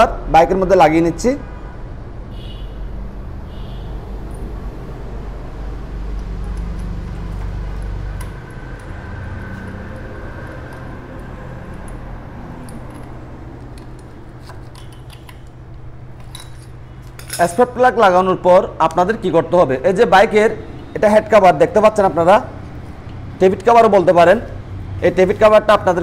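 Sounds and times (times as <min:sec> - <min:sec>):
low mechanical hum: 0:01.4 - 0:26.0
metallic tool clicks: 0:12.6 - 0:17.6.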